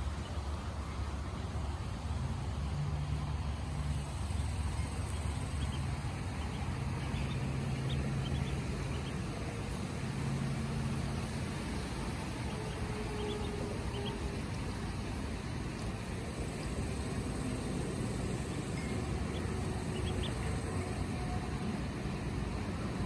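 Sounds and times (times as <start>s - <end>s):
ducklings peeping: 0.0s - 0.7s, 4.0s - 21.2s
low hum and hiss: 0.0s - 23.0s.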